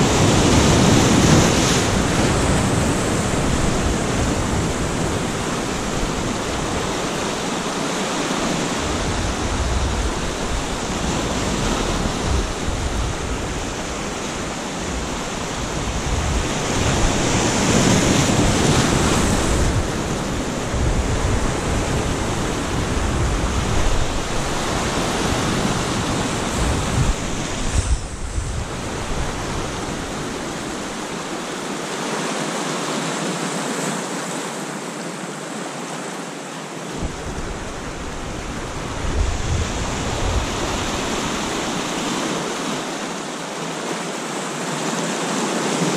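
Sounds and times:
wind buffeting microphone: 0.0 - 31.6, 36.9 - 42.6
surf breaking over rocks: 0.0 - 33.4.

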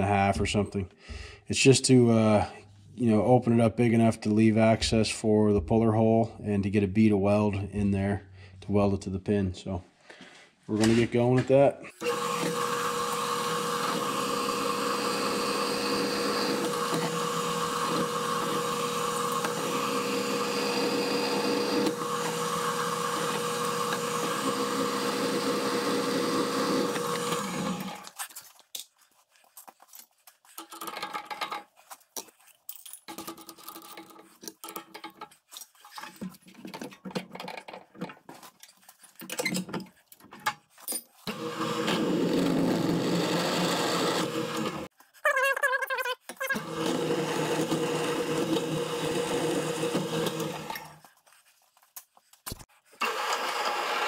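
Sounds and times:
drill press drilling metal: 12.0 - 28.0, 41.3 - 44.9, 46.6 - 51.0, 53.0 - 54.0.

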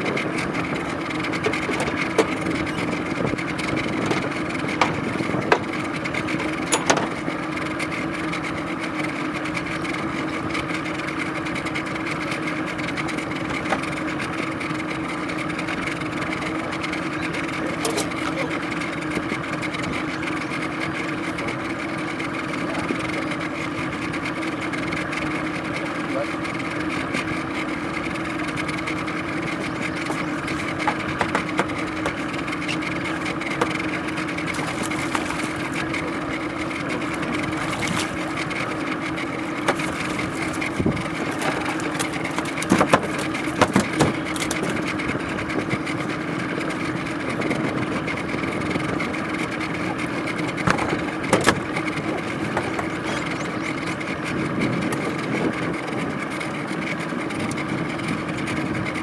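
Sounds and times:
outboard motor idling: 0.0 - 59.0
knocks and bumps in boat: 0.1 - 7.4, 28.2 - 46.1, 49.1 - 53.6.

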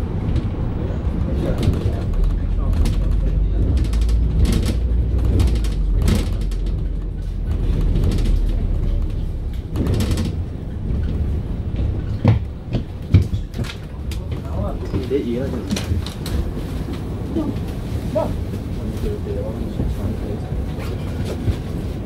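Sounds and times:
bus drivetrain and road rumble: 0.0 - 22.0
knocks: 2.8 - 15.1.

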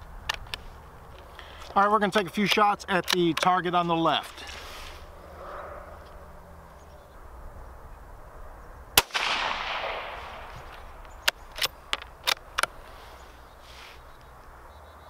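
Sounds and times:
rifle bolt clicks: 2.5 - 3.5, 10.7 - 12.8
rifle shot: 9.0 - 10.7.

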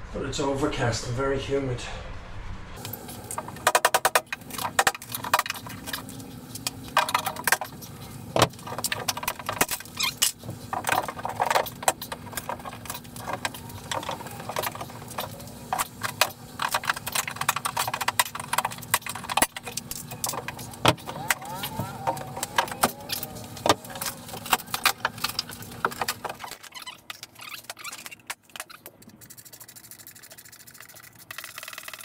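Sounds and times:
board cracking and rattling: 3.4 - 6.1, 8.4 - 29.2.

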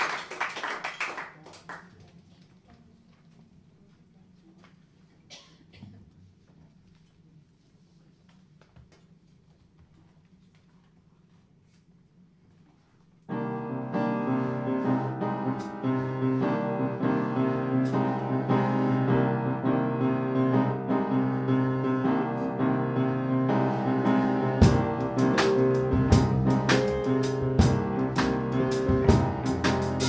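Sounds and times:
jazz piano playing: 13.3 - 30.0
drum hits: 24.6 - 30.0.

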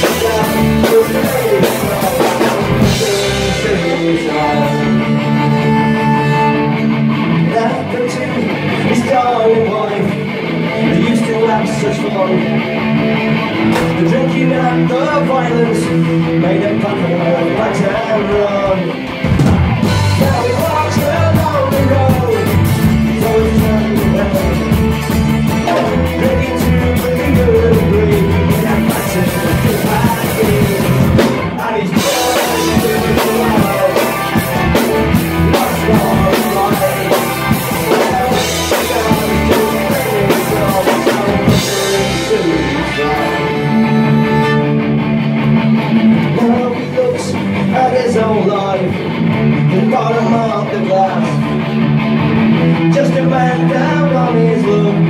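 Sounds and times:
acoustic guitar: 0.0 - 55.0
drum kit: 0.0 - 55.0
fiddle: 38.9 - 45.0.

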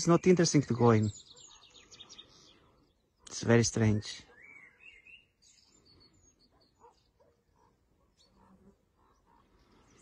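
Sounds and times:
faint bird chirps: 0.0 - 10.0.

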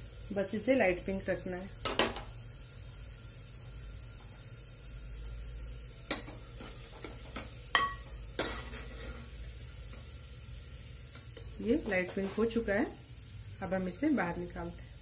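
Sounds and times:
onions sizzling in oil: 0.0 - 15.0
ladle scraping and clinking pot: 6.1 - 9.3.

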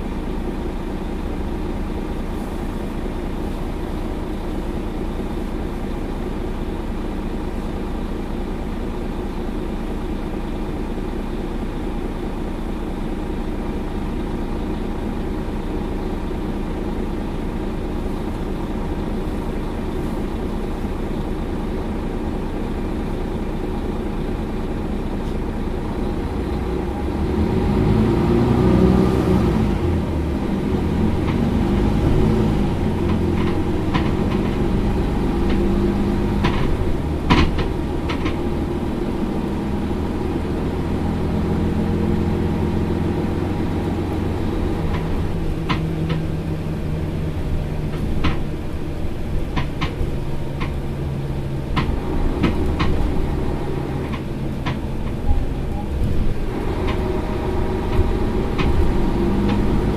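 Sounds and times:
bus engine idling: 0.0 - 59.9.

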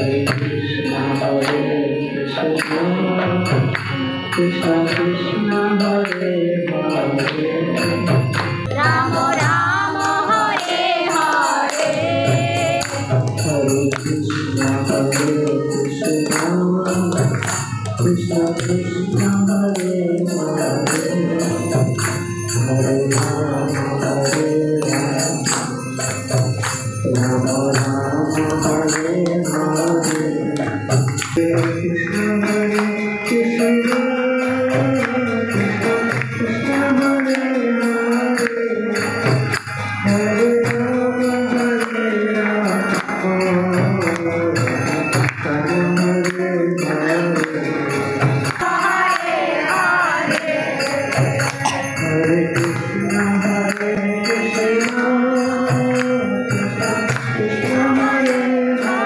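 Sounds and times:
hand cymbals striking: 2.6 - 59.0
group chanting: 8.8 - 13.4, 48.6 - 52.1.

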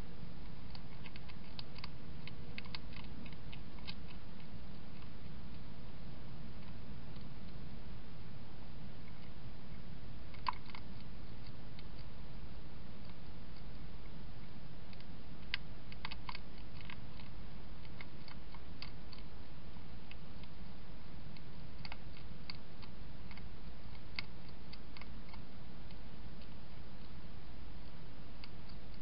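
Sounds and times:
steady low hum: 0.0 - 29.0
hedgehog chewing crunches: 0.4 - 5.4, 10.3 - 12.2, 14.9 - 19.3.

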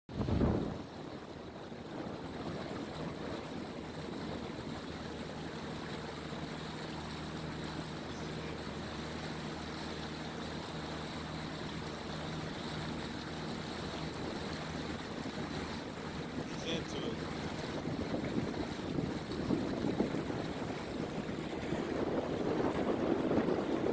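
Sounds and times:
wind noise: 0.1 - 3.4, 17.2 - 23.9
boat motor humming: 0.1 - 23.9
water noise: 0.1 - 23.9.

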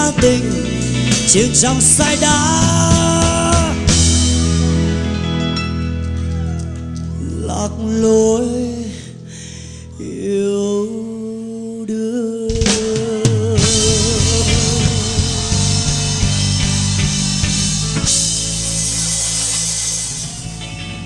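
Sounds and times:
man singing with vibrato: 0.0 - 4.4, 7.2 - 16.5
band playing: 0.0 - 8.4, 12.6 - 21.0.

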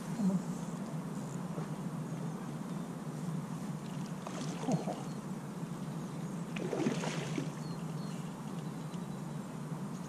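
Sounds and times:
fish thrashing and water splashing: 6.6 - 7.6.

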